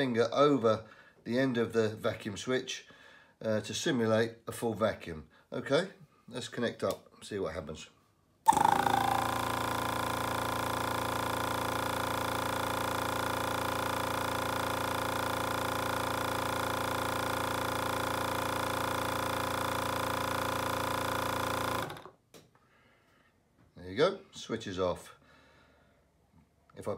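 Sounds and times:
vacuum pump humming: 8.5s - 22.1s.

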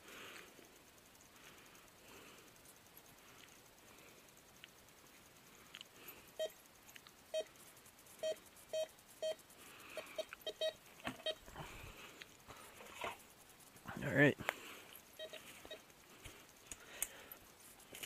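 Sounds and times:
metal detector beeps: 6.4s - 6.6s, 7.3s - 7.5s, 8.2s - 9.4s, 10.0s - 11.5s, 15.2s - 15.9s.

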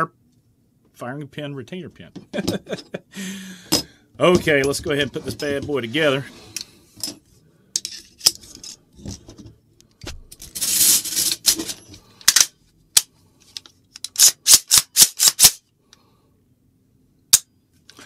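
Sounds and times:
metal parts clicking: 10.3s - 12.5s, 13.6s - 15.6s
sliding metal scrape: 10.5s - 11.9s.

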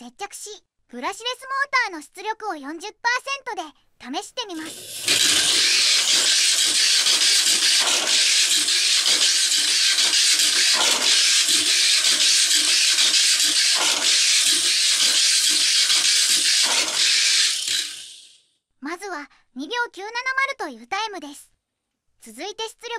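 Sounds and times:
toy car motor whirring on track: 4.5s - 18.4s.

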